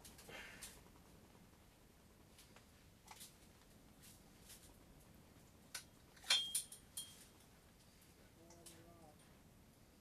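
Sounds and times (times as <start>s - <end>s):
light clicks and rustles: 2.3s - 4.8s.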